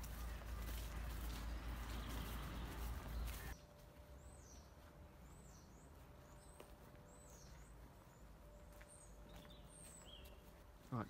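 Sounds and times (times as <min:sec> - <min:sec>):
high-pitched bird calls: 0:04.2 - 0:10.7.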